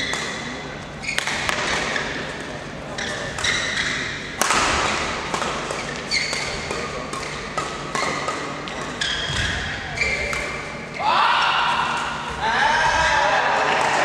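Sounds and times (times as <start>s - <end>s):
rackets hitting shuttlecock: 0.0s - 2.6s, 3.2s - 10.9s
shoes squeaking on court: 2.9s - 4.4s, 5.8s - 10.9s.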